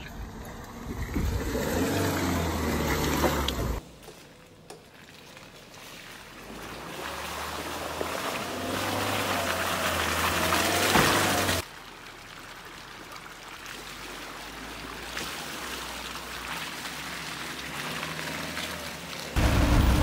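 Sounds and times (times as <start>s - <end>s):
tyres through mud and water: 0.0s - 20.0s
engine running under load: 19.4s - 20.0s.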